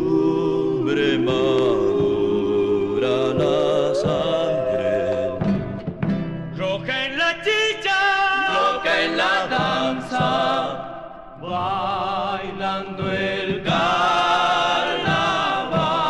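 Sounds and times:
male vocal group singing: 0.0 - 5.9, 6.6 - 16.0
guitar accompaniment: 0.0 - 16.0.

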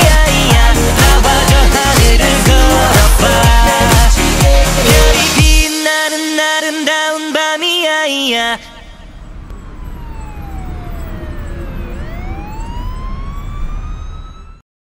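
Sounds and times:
siren-like tone: 8.8 - 14.6.

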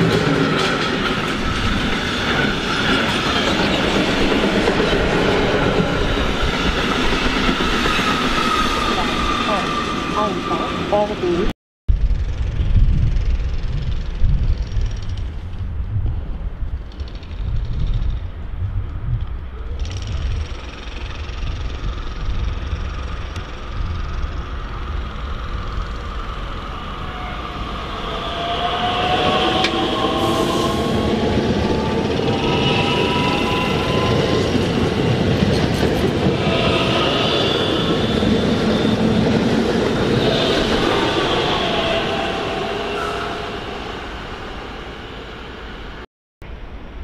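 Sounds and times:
electric train passing: 0.0 - 11.4, 19.4 - 47.0
high-pitched squeal: 23.0 - 46.0.

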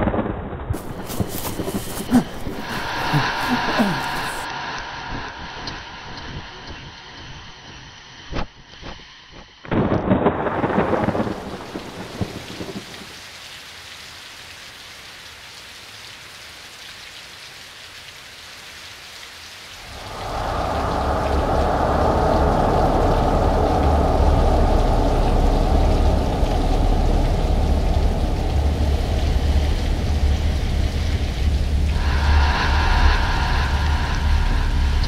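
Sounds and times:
heavy rain: 0.0 - 7.6, 9.7 - 35.0
thunder clap rumbling: 9.8 - 13.0, 19.8 - 35.0.

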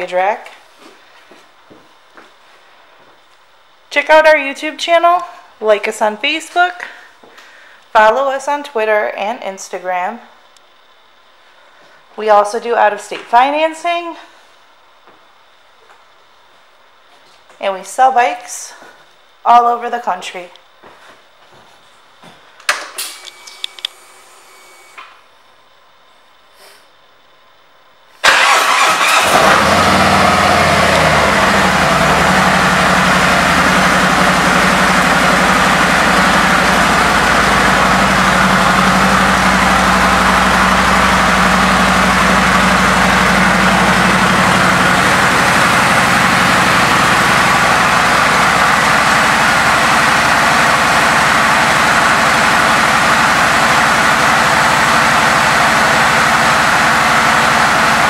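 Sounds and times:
motorcycle engine starting and idling: 28.2 - 58.0.

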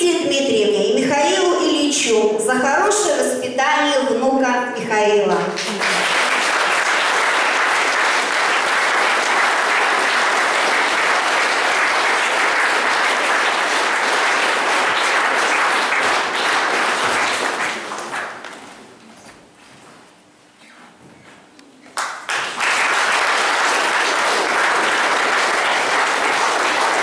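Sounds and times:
audience applauding: 5.5 - 18.7, 21.9 - 27.0.

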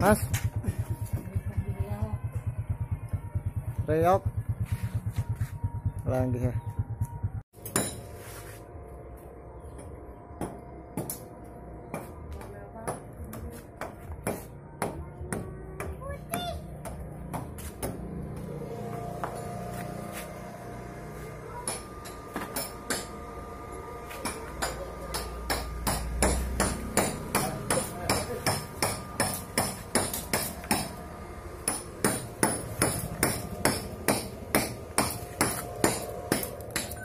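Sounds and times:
hammer striking chisel: 7.6 - 8.2, 9.8 - 11.3, 21.6 - 23.2, 24.2 - 31.0, 31.6 - 37.0.

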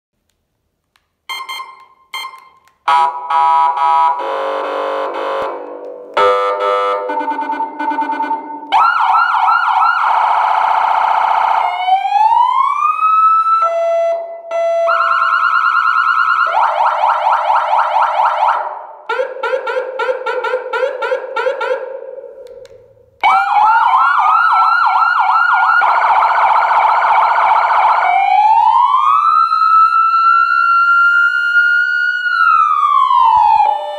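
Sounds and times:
short beeps: 1.3 - 2.6
electronic siren: 1.3 - 22.3, 23.2 - 33.9.

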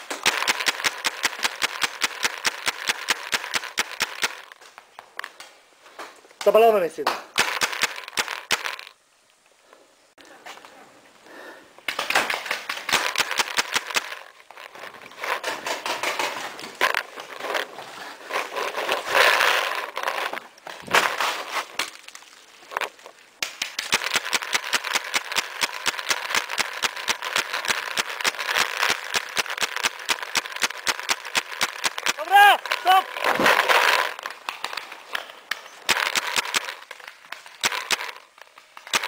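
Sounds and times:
paintball markers firing: 0.0 - 4.6, 7.1 - 8.9, 11.9 - 14.3, 23.4 - 39.0.

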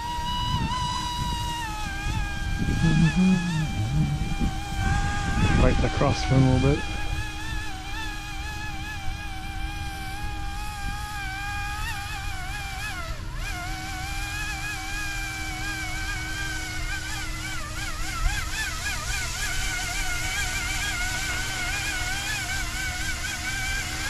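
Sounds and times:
wind rumble on microphone: 0.0 - 13.3
rc helicopter motor whining: 0.0 - 24.0.

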